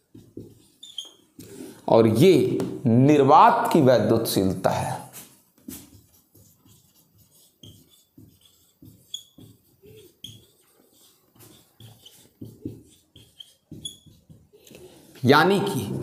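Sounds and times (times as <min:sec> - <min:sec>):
scratchy writing on a board: 0:00.0 - 0:01.6, 0:05.2 - 0:15.1.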